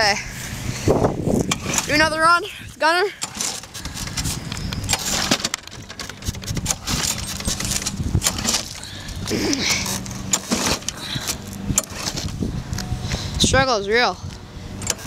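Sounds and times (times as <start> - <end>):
low steady hum: 0.0 - 15.0
lawn mower engine struggling: 1.1 - 13.4, 14.4 - 15.0
recoil cord knocks and rattles: 3.3 - 12.4.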